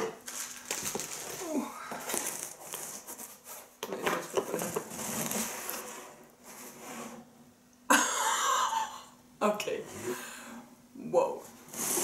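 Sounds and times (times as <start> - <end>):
cardboard flaps scraping: 4.5 - 7.2, 11.6 - 12.0.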